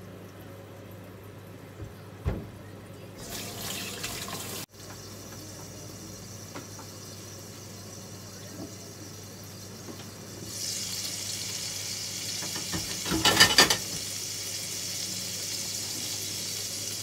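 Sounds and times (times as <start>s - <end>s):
thump: 1.8s - 2.6s
patties frying in pan: 3.2s - 17.0s
tap water running: 3.2s - 17.0s.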